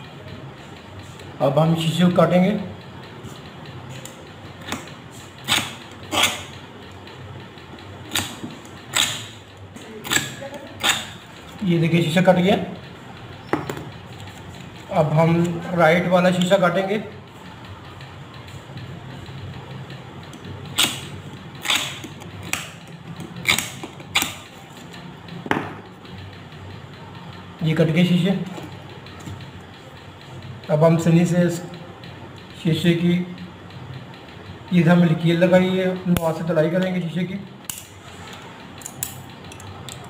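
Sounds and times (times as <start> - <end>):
glass cutter scratching lens: 4.7 - 6.6, 8.1 - 9.3, 10.0 - 11.2, 20.8 - 22.6.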